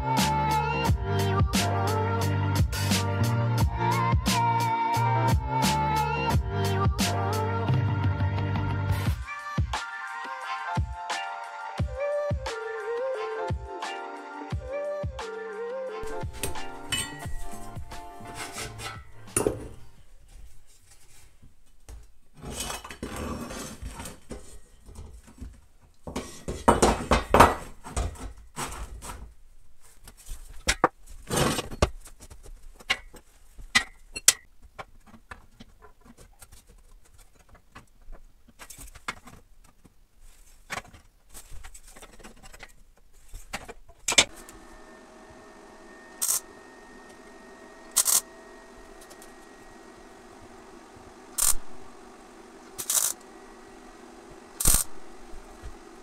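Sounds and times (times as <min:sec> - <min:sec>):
steel tubing clanking: 0:16.0 - 0:19.9
welder humming: 0:16.0 - 0:19.9, 0:44.2 - 0:56.0
tack-weld bursts: 0:51.4 - 0:51.8, 0:52.8 - 0:53.3, 0:54.6 - 0:55.3.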